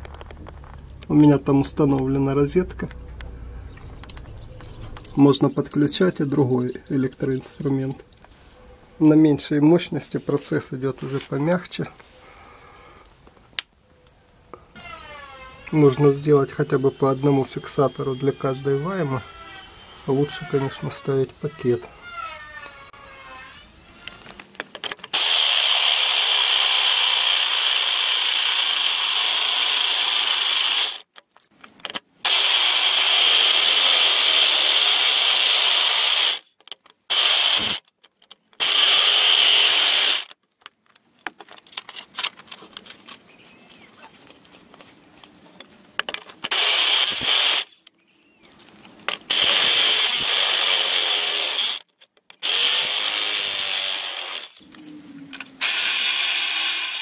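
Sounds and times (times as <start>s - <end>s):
hammer drill whining through steel: 25.1s - 31.1s, 32.2s - 36.5s, 37.1s - 37.8s, 38.6s - 40.3s, 46.5s - 47.8s, 49.3s - 54.6s, 55.6s - 57.0s.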